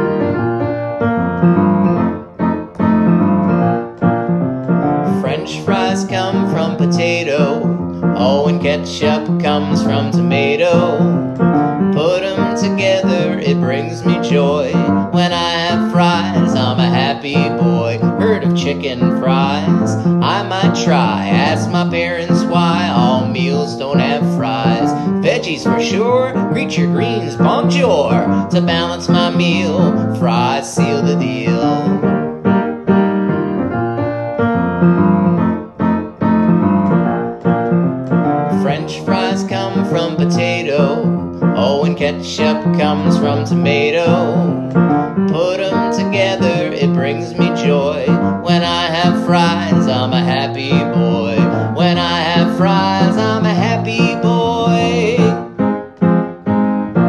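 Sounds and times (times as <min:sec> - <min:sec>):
piano playing: 0:00.0 - 0:57.0
person singing: 0:05.0 - 0:32.1, 0:38.4 - 0:55.6.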